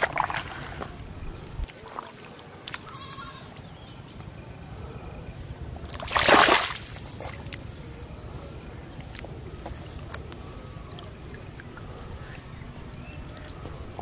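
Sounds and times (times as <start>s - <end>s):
hand splashing in muddy water: 0.0s - 0.8s, 5.9s - 7.6s
loud splash: 6.0s - 7.4s.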